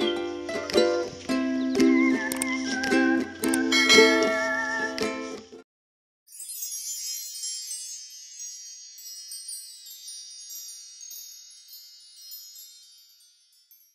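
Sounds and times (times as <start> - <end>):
shimmering bell-like chime: 3.7 - 4.7, 6.3 - 13.9.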